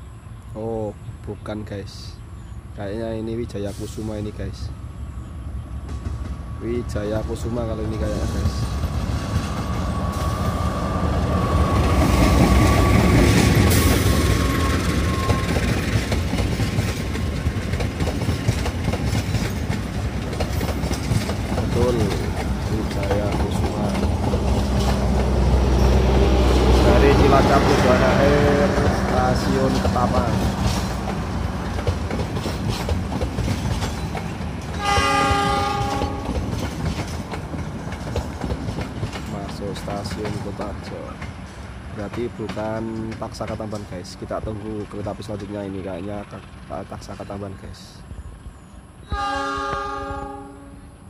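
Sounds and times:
train coaches rumbling past: 0.0 - 51.0
wheels clicking over rail joints: 11.8 - 27.8, 28.7 - 47.5
train horn: 34.8 - 36.4, 49.0 - 51.0.

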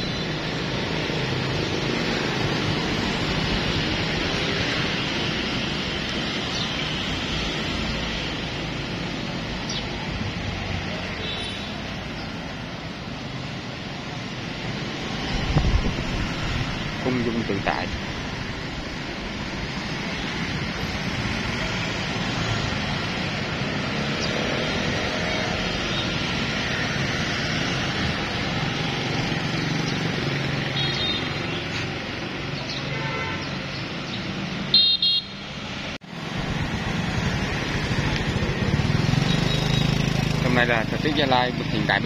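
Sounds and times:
road traffic: 0.0 - 42.0
vehicle horn beeps: 34.7 - 35.4.

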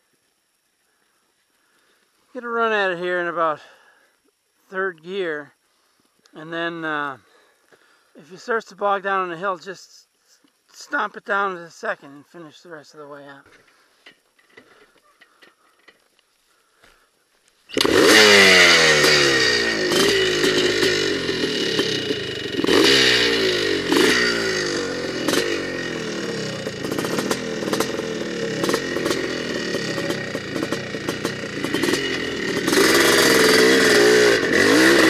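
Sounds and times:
bike rattling on rough trail: 17.6 - 35.0
dirt bike engine revving: 17.7 - 35.0.

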